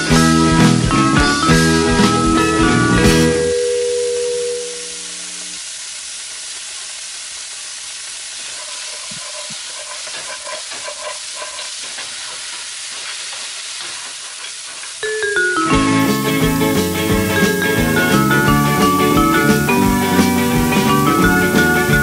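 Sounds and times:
food sizzling in a pan: 0.0 - 22.0
utensil clattering against pan: 8.4 - 15.0.

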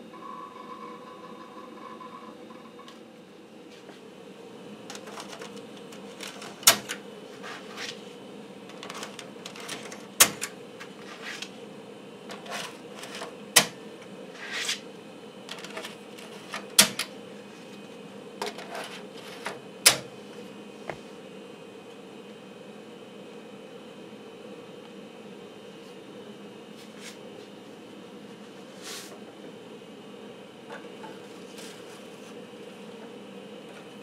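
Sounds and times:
steady hum: 0.0 - 34.0
floppy drive latching click: 4.9 - 7.0, 8.7 - 10.6, 12.3 - 13.8, 19.9 - 20.1.

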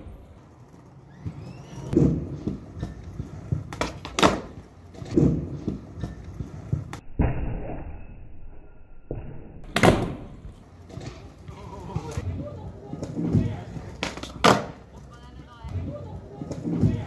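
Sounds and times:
skateboard wheels rolling: 0.0 - 7.0, 9.6 - 17.0
skateboard deck clacking on concrete: 2.1 - 6.9, 13.0 - 15.1.

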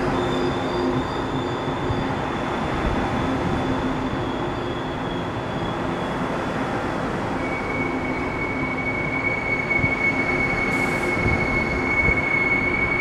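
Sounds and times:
train rumbling: 0.0 - 13.0
high-pitched squeal: 7.4 - 13.0.

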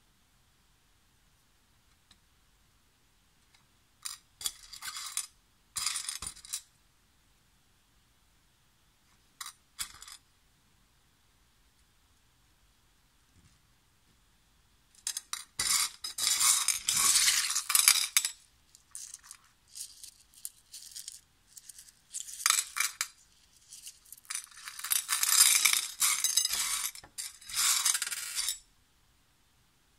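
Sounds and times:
stones clinking on ceramic plate: 15.0 - 28.6.

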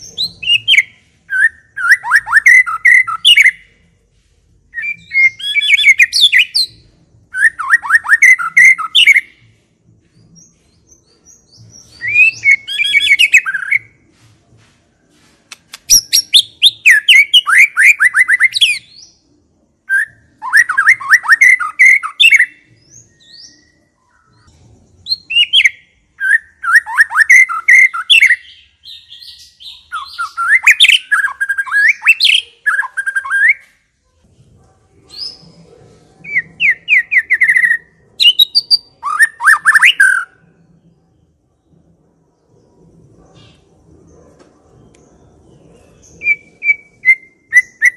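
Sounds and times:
shama bird singing whistles: 0.2 - 3.6, 4.7 - 9.4, 11.9 - 14.0, 19.9 - 23.7, 46.2 - 47.9.

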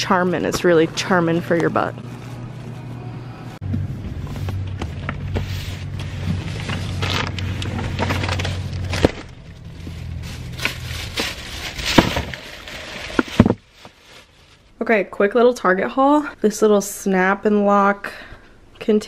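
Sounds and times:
steady low hum: 0.0 - 12.6
plastic bags rustling: 4.1 - 14.8.

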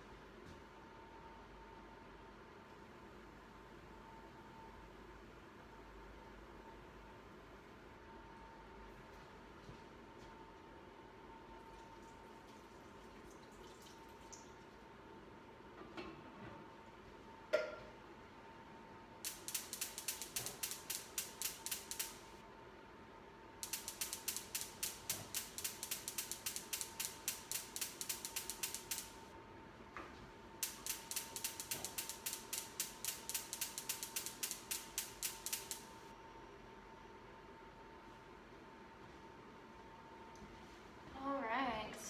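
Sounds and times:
rapid mechanical clicking: 19.2 - 22.4, 23.6 - 29.3, 30.6 - 36.0.

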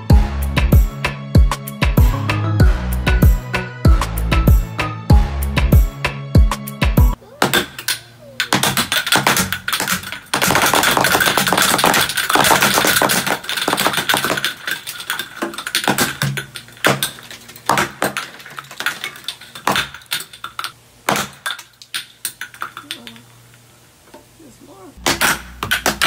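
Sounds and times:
film canister rockets popping: 7.4 - 23.3, 25.0 - 26.0
canisters landing on table: 8.5 - 22.8.

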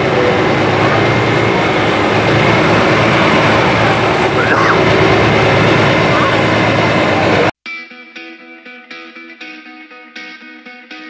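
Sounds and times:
tractor diesel engine running: 0.0 - 7.6.

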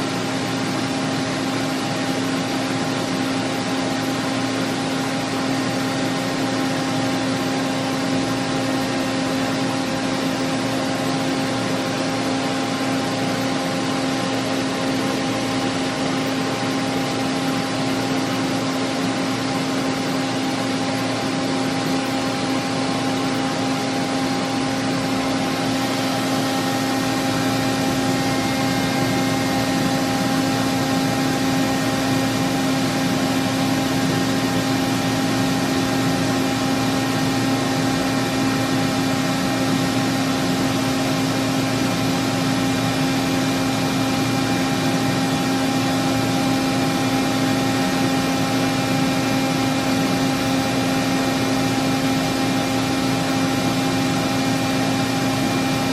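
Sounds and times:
boring mill machine hum: 0.0 - 55.9.

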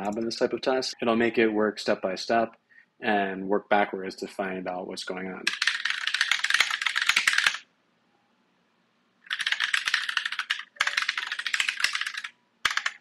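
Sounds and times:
fast typing on keyboard: 5.4 - 7.6, 9.3 - 13.0.

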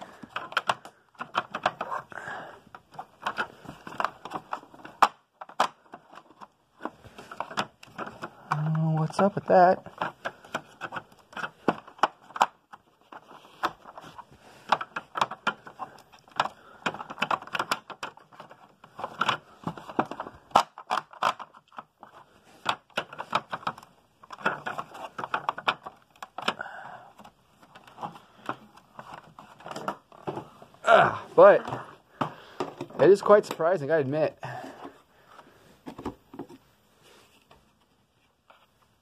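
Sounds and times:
plastic clicks and scraping: 0.0 - 30.8.

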